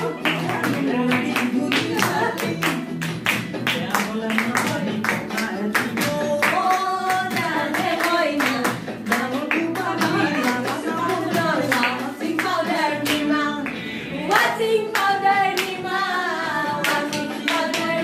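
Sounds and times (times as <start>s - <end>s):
hands clapping in time: 0.0s - 13.8s
people singing together: 0.0s - 18.0s.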